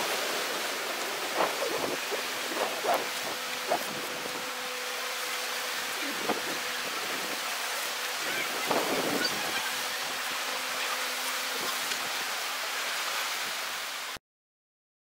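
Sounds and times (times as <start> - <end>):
wind blowing across microphone: 0.0 - 4.5, 5.9 - 10.1
distant speedboat engine drone: 0.0 - 13.8.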